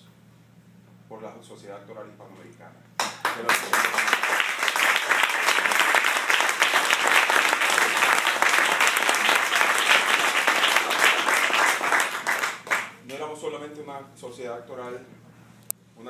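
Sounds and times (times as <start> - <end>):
audience applauding: 3.0 - 13.0.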